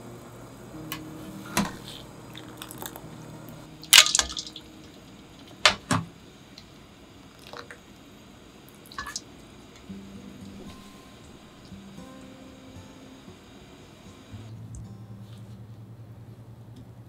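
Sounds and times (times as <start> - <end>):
wet splashes and plops in water: 3.8 - 4.7, 8.9 - 9.2.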